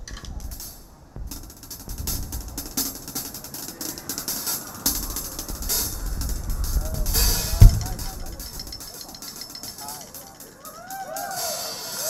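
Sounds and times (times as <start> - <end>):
drum kit played fast: 0.0 - 10.6.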